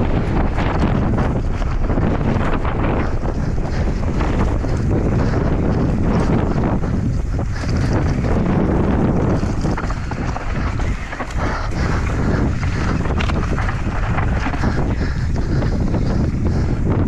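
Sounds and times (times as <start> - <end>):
bike tyre noise: 0.0 - 17.0
wind buffeting microphone: 0.0 - 17.0
bike clattering over rocks: 7.6 - 15.3.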